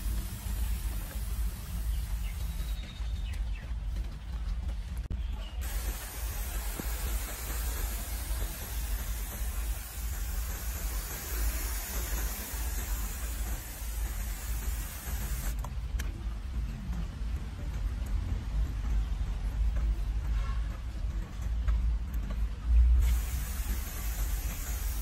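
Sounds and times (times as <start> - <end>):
pressure sprayer hissing: 0.0 - 2.8, 5.6 - 15.6, 23.0 - 25.0.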